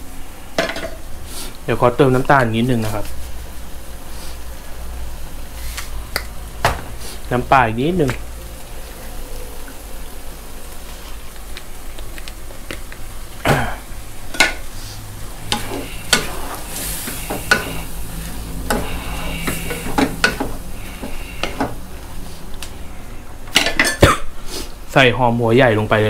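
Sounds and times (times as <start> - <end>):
food sizzling in a wok: 0.0 - 26.0
spatula knocking and scraping pan: 15.4 - 18.0, 18.6 - 21.8.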